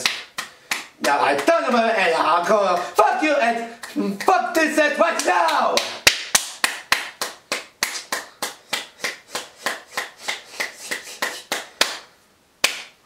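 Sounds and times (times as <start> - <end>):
person clapping hands: 0.0 - 1.9, 3.8 - 13.0.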